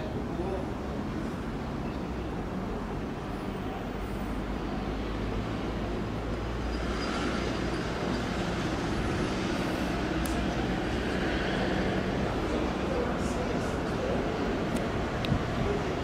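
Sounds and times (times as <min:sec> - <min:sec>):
diesel locomotive engine humming: 0:02.2 - 0:16.0
train rolling on track: 0:05.0 - 0:16.0.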